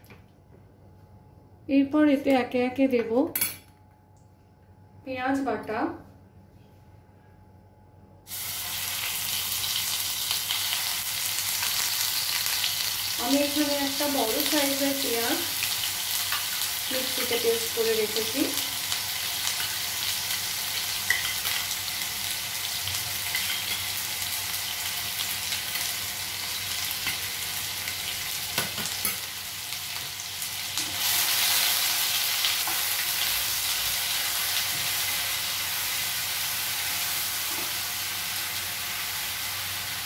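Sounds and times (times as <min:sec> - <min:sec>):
onion paste sizzling in oil: 0:08.3 - 0:40.0.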